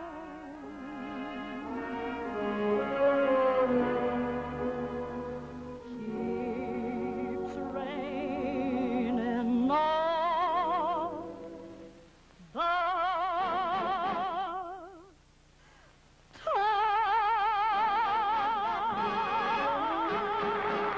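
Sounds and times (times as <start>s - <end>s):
soprano singing operatically: 0.0s - 15.1s, 16.4s - 20.9s
orchestral accompaniment: 0.1s - 9.3s, 18.9s - 20.9s.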